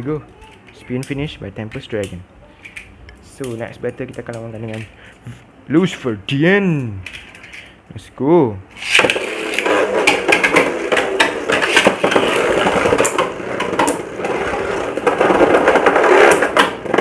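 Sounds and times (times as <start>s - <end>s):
spinning tops colliding clicks: 8.8s - 17.0s
spinning tops whirring: 8.8s - 17.0s.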